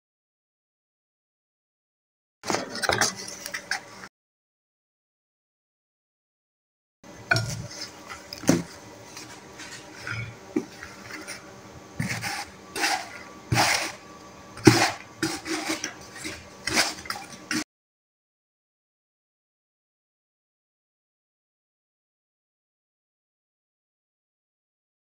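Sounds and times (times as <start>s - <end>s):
spoon scraping takeaway box: 12.0s - 14.0s, 14.6s - 17.6s.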